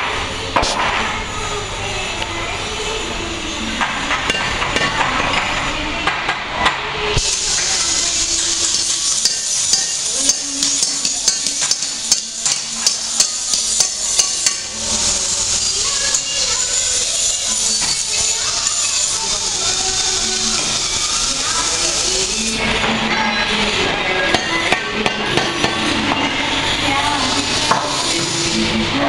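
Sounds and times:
arc welding crackling hiss: 7.1s - 29.0s
hammer striking metal: 7.4s - 14.8s, 24.3s - 26.4s.

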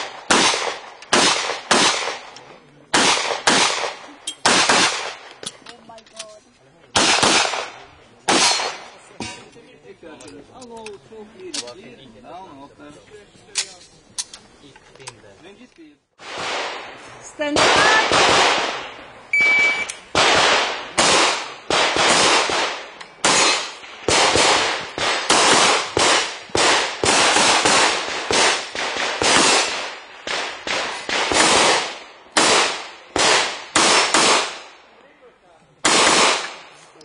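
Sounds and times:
pistol shots echoing: 0.0s - 5.3s, 7.0s - 9.0s, 16.2s - 34.8s, 35.8s - 36.8s
shot timer beep: 19.3s - 19.9s.

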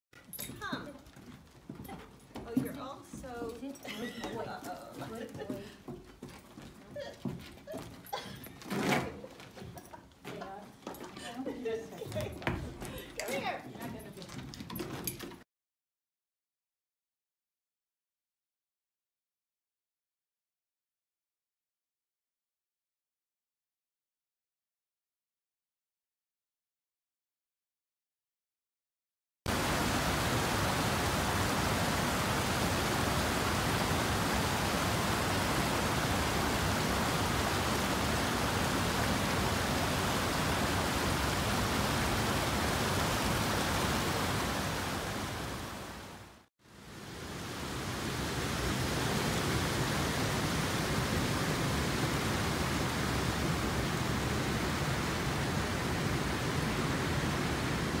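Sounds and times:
brook rushing over rocks: 29.5s - 46.1s.

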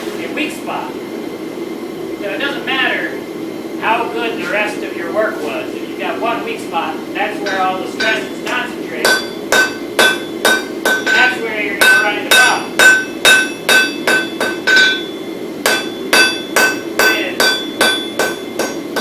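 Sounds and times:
hammer striking steel on anvil: 7.4s - 19.0s.

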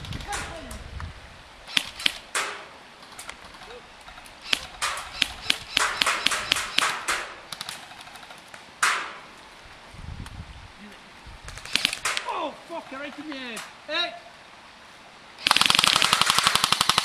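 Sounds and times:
airsoft guns firing: 1.7s - 2.7s, 4.4s - 8.2s, 11.6s - 12.3s, 15.4s - 17.0s.

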